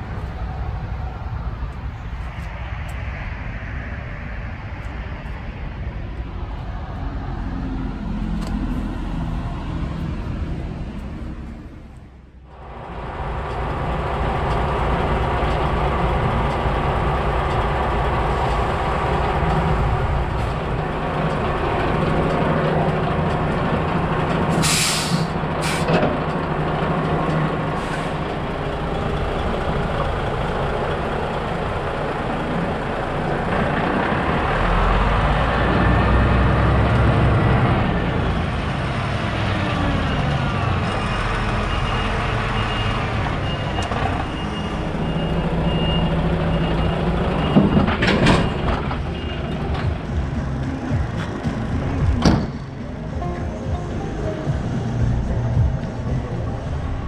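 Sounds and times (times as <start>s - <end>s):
diesel engine running: 0.0s - 57.0s
compressed air hisses: 24.6s - 25.9s.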